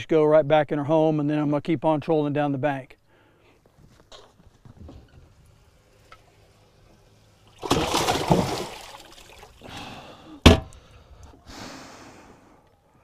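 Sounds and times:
water splashing: 5.9s - 9.8s.

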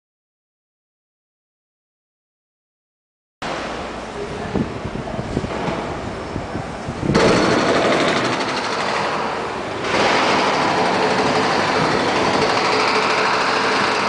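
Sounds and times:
machinery rattling: 5.1s - 14.0s.

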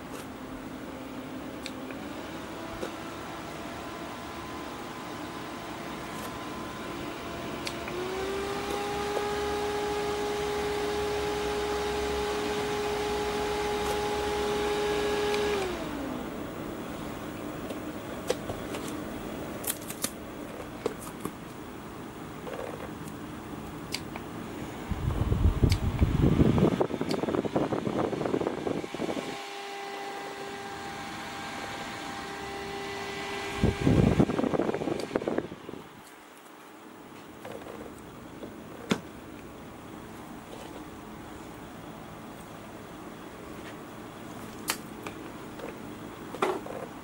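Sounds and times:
handheld fan whirring: 0.0s - 47.0s
airflow rumble on microphone: 24.6s - 29.4s, 33.4s - 36.0s.

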